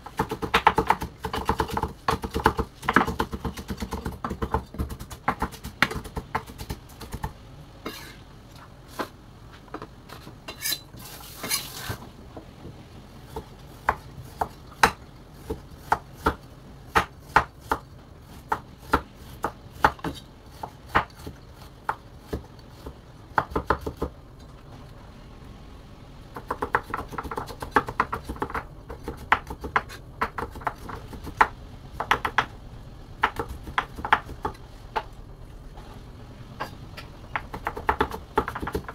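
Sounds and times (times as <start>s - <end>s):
knife chopping on cutting board: 0.1s - 7.3s.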